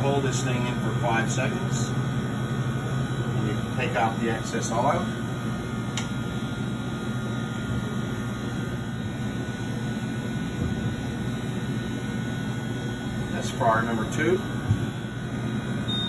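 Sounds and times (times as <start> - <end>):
exhaust fan roaring: 0.0 - 16.0.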